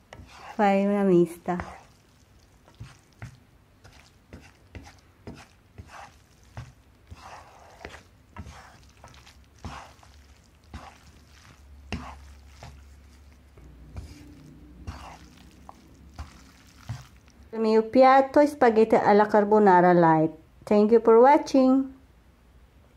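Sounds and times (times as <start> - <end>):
wet squelching of pasta: 0.0 - 17.5.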